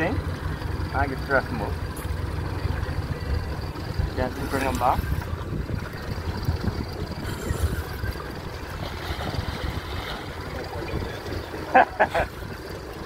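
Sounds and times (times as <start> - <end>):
boat noise: 0.0 - 13.0
wind buffeting microphone: 2.8 - 11.7.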